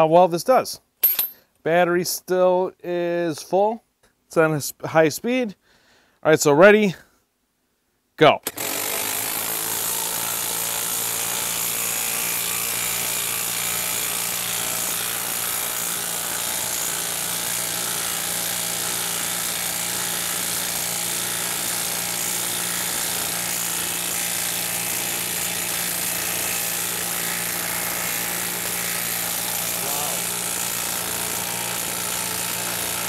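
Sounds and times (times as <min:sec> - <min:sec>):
impact wrench hammering: 0:01.0 - 0:01.4, 0:08.5 - 0:33.0.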